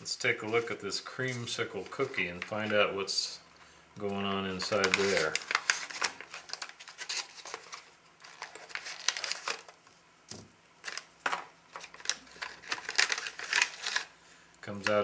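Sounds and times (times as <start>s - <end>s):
plastic pouch crinkling: 4.5s - 9.9s, 10.8s - 14.2s.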